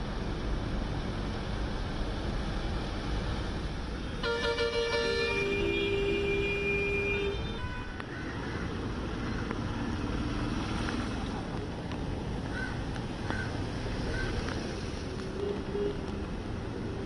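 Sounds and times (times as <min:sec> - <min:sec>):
traffic rumble on flooded road: 0:00.0 - 0:17.0
vehicle horn: 0:04.2 - 0:08.0.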